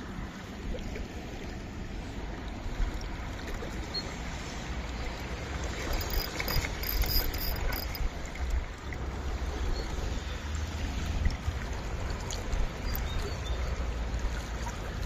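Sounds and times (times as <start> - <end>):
stream running over stones: 0.0 - 15.0
faint high clicks: 5.9 - 8.1.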